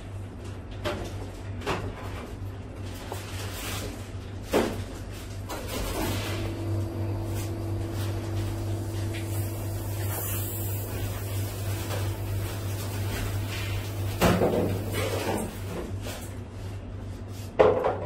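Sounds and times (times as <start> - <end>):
steady machine hum: 5.7 - 17.2.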